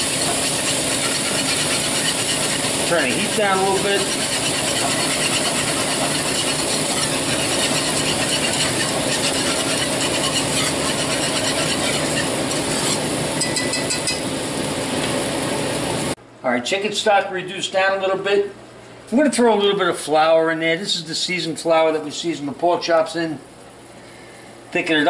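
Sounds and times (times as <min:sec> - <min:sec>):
whisk scraping frying pan: 0:00.0 - 0:14.3
stock simmering: 0:00.0 - 0:16.2.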